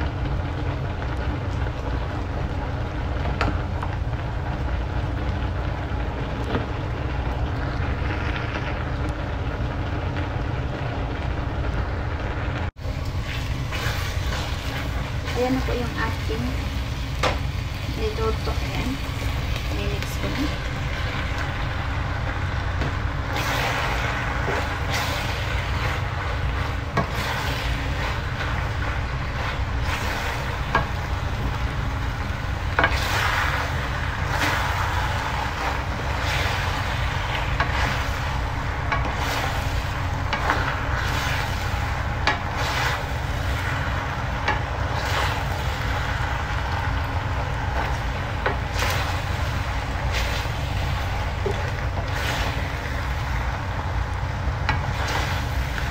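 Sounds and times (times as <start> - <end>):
low rumble: 0.0 - 55.9
soft sizzle: 0.0 - 55.9
wooden spoons scraping in pan: 13.1 - 53.4, 54.6 - 55.9.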